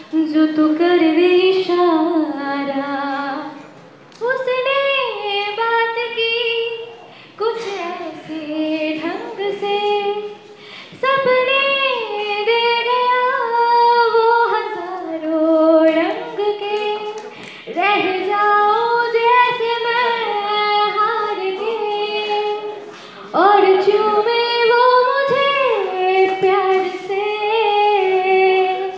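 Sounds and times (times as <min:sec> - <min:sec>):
women singing into microphones: 0:00.0 - 0:28.9.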